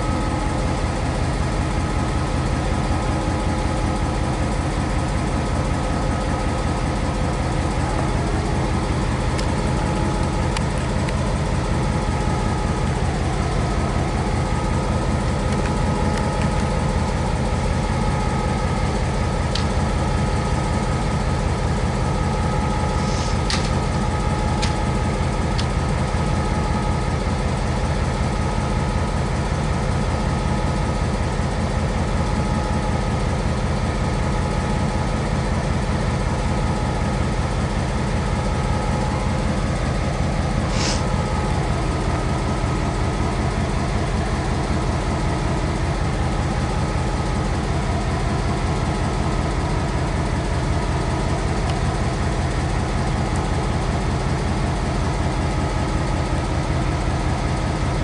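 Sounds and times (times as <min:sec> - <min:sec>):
locomotive engines idling: 0:00.0 - 0:58.0.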